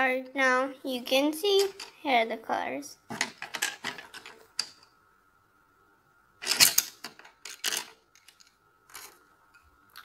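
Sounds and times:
wooden pencils clattering: 0:03.1 - 0:04.8, 0:06.4 - 0:09.3.

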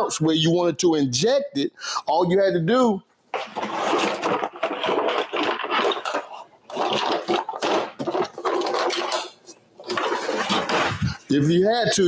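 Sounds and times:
metal utensils clattering: 0:03.4 - 0:11.2.

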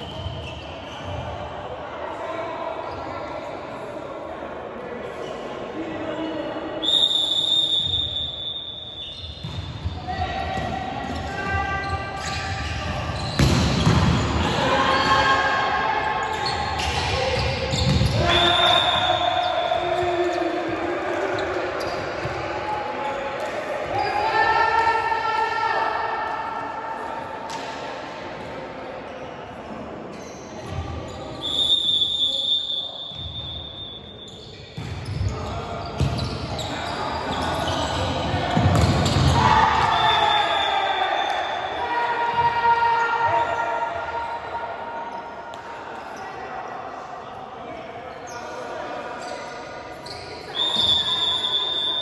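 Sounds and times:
players' voices: 0:09.2 - 0:52.0
volleyball strike: 0:13.3 - 0:14.5, 0:38.5 - 0:39.4
volleyball thudding: 0:13.4 - 0:14.2.

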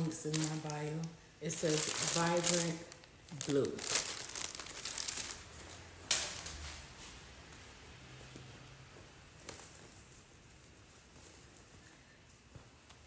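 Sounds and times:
plastic bag rustling and crinkling: 0:00.0 - 0:07.1.

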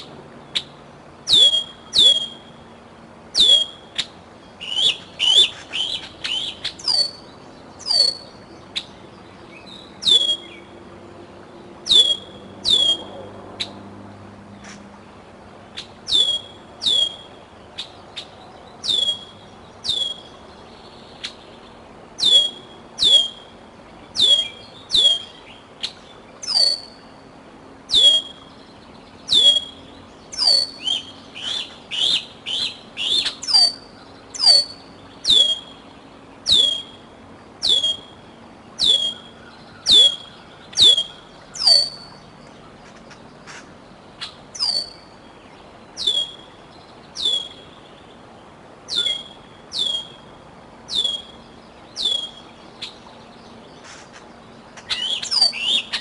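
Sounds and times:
young eagle calling: 0:09.7 - 0:10.6, 0:11.9 - 0:13.2, 0:15.8 - 0:17.9, 0:22.2 - 0:23.5, 0:24.2 - 0:25.4, 0:26.4 - 0:27.0, 0:27.9 - 0:28.5, 0:29.3 - 0:35.8, 0:36.4 - 0:37.0, 0:37.6 - 0:38.2, 0:38.8 - 0:42.2, 0:44.2 - 0:45.2, 0:46.0 - 0:46.5, 0:47.2 - 0:47.7, 0:48.9 - 0:50.3, 0:50.9 - 0:51.4, 0:52.0 - 0:53.0, 0:54.8 - 0:56.0.

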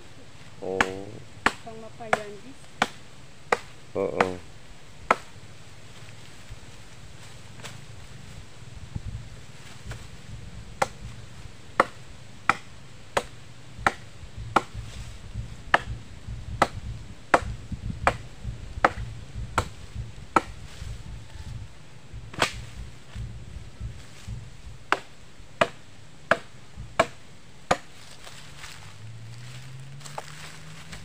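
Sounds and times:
machete chopping branch: 0:00.7 - 0:04.4, 0:05.1 - 0:05.4, 0:10.8 - 0:11.2, 0:11.8 - 0:15.1, 0:15.7 - 0:16.0, 0:16.6 - 0:20.9, 0:22.2 - 0:28.0
low rumble: 0:04.9 - 0:31.0.

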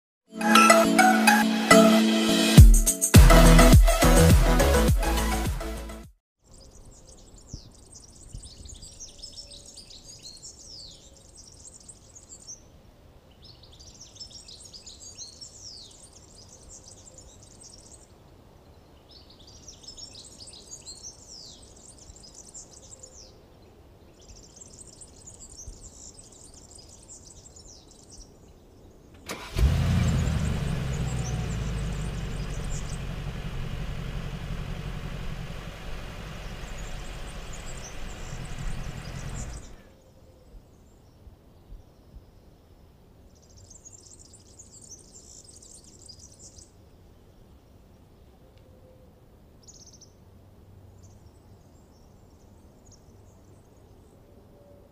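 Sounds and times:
bird singing: 0:06.4 - 0:12.7, 0:24.1 - 0:41.2, 0:43.3 - 0:47.5
car engine starting and idling: 0:29.2 - 0:39.8.

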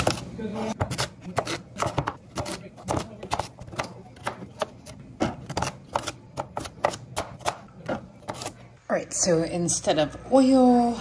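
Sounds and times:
knife chopping on cutting board: 0:00.0 - 0:08.6.

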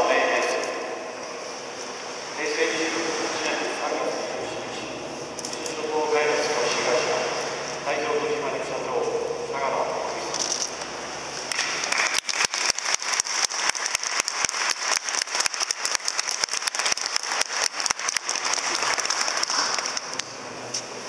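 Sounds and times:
crowd applauding: 0:11.5 - 0:20.4.

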